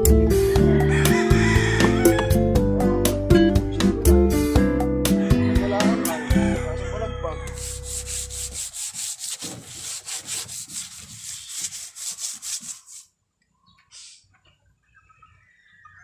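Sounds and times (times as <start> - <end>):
hand sanding rubbing strokes: 7.5 - 13.1.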